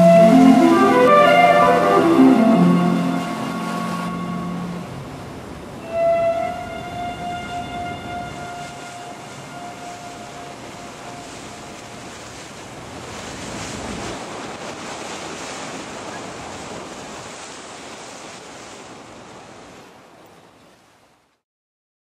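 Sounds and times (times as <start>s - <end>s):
sea water rushing: 0.0s - 21.3s
wind buffeting microphone: 6.6s - 21.0s.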